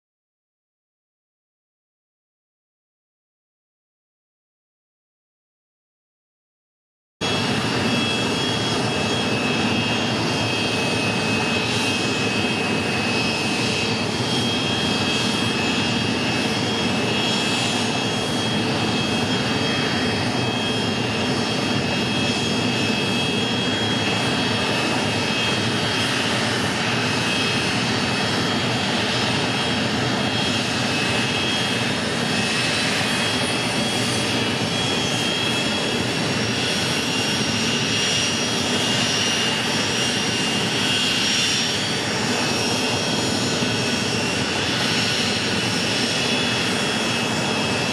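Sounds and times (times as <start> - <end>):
jet engines running with whine: 7.2 - 47.9.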